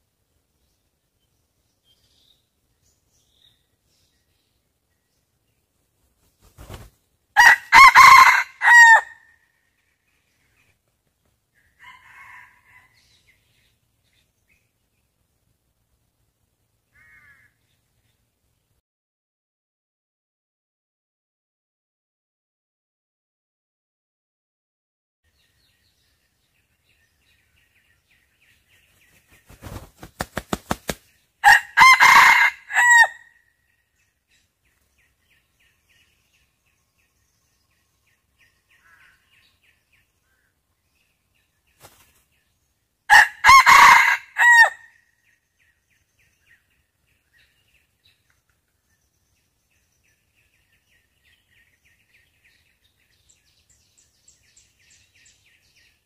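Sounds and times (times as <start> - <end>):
small birds chirping: 0.5 - 7.2, 25.3 - 31.4, 33.5 - 43.0, 45.0 - 56.0
rooster flapping wings: 6.1 - 7.0, 29.0 - 31.1, 41.8 - 42.2
rooster crowing: 7.4 - 9.2, 11.7 - 13.0, 31.4 - 33.3, 43.1 - 44.9.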